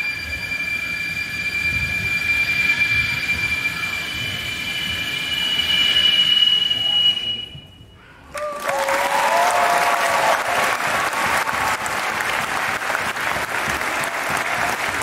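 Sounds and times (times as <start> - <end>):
high cheers: 8.2 - 15.0
audience applauding: 8.3 - 15.0.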